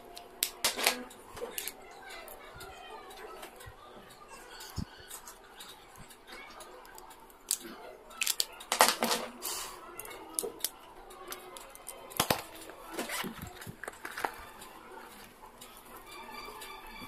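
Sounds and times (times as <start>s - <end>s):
stationery items clicking and knocking: 0.0s - 1.8s, 6.9s - 9.4s, 10.0s - 14.6s.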